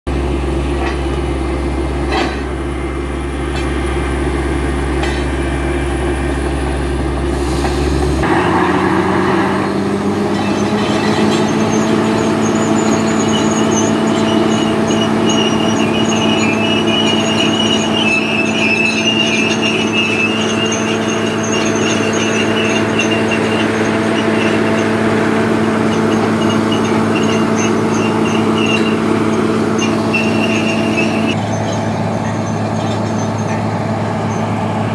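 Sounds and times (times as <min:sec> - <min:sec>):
drilling rig engine drone: 0:00.1 - 0:34.9.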